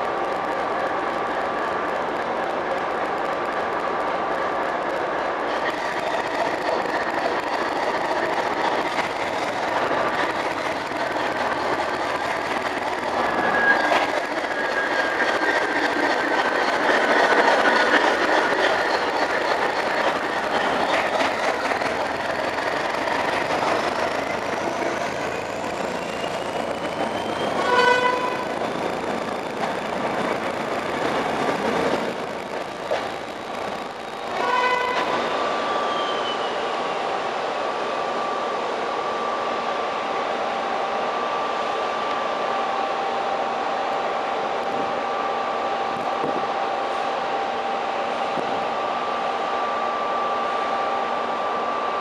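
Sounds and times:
train engine and wheel noise: 0:00.0 - 0:52.0
train horn blast: 0:27.6 - 0:28.4, 0:34.4 - 0:35.1
thin wheel squeal: 0:35.7 - 0:36.6.

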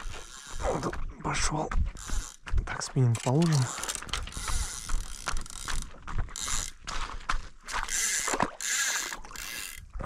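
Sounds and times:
fishing reel ratcheting: 0:00.0 - 0:00.6, 0:03.2 - 0:06.8, 0:07.9 - 0:09.8.

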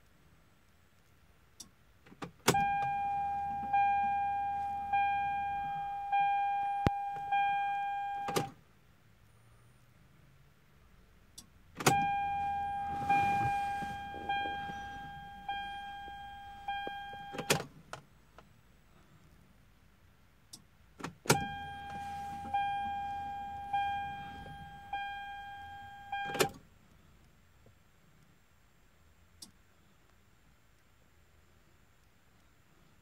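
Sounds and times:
dashboard warning chime dinging: 0:02.5 - 0:08.6, 0:11.8 - 0:17.7, 0:21.2 - 0:26.6
ignition key click: 0:11.4 - 0:17.7, 0:20.5 - 0:25.1, 0:26.2 - 0:26.6.

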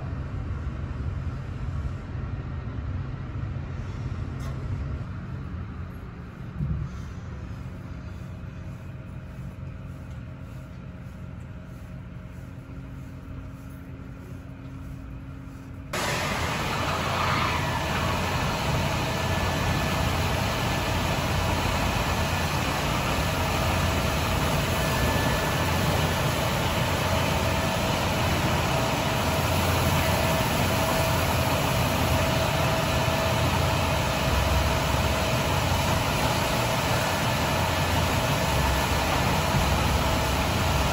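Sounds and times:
car wash machinery running: 0:00.0 - 0:40.9
bus engine idling: 0:05.4 - 0:40.9
water spraying: 0:16.0 - 0:40.9.

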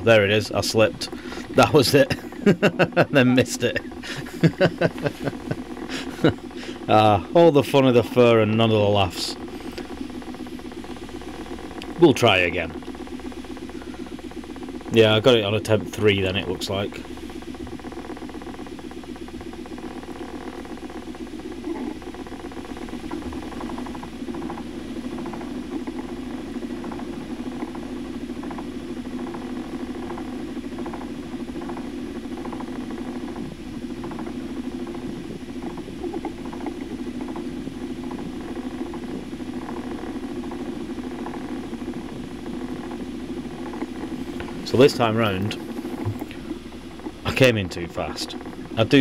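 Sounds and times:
boat engine running: 0:00.0 - 0:49.0.

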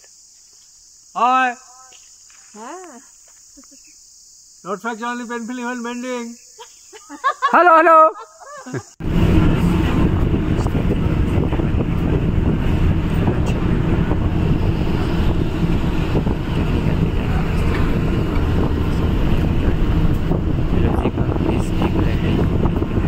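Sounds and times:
wind buffeting microphone: 0:09.0 - 0:23.0.

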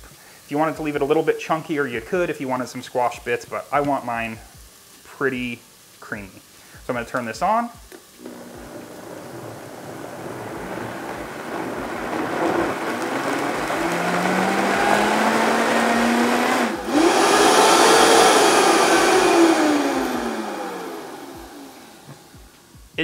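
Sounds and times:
blender motor whining: 0:08.2 - 0:22.5.

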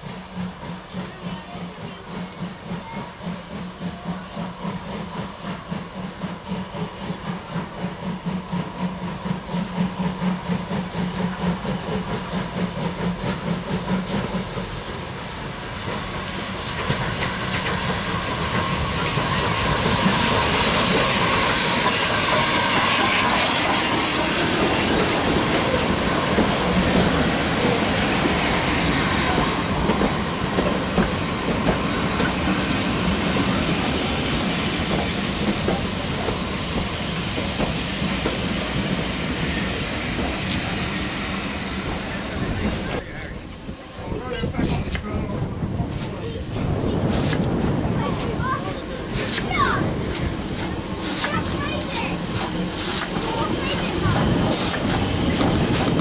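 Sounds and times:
loud steam hiss: 0:00.0 - 0:56.0
steam locomotive exhaust beat: 0:00.0 - 0:56.0
wheels clicking over rail joints: 0:45.8 - 0:56.0.

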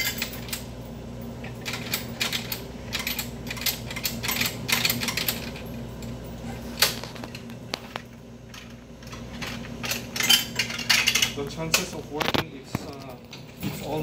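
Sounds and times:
coin mechanism clicks and rattles: 0:00.0 - 0:00.7, 0:01.3 - 0:06.2, 0:08.5 - 0:14.0
steady low hum: 0:00.0 - 0:14.0.

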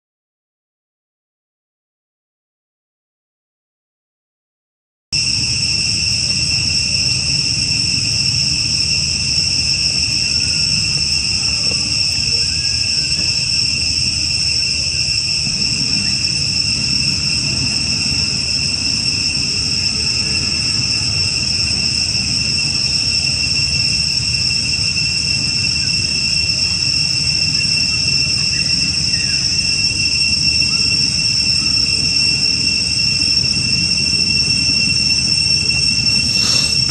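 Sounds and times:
insect chorus shrilling: 0:05.2 - 0:36.9.

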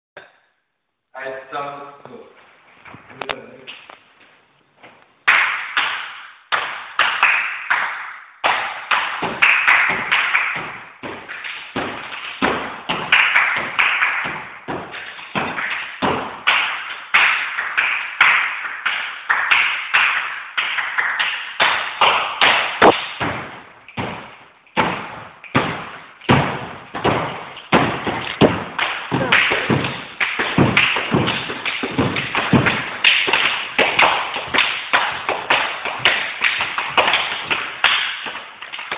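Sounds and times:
hand slaps: 0:08.5 - 0:38.9
foot stamps on wooden floor: 0:22.8 - 0:38.9.

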